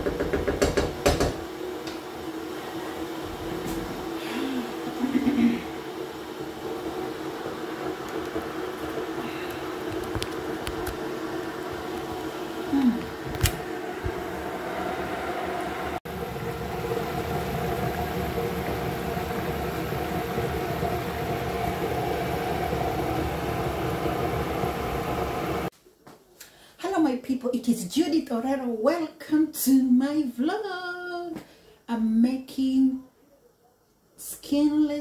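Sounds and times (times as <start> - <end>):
extractor fan whirring: 0.0 - 25.7.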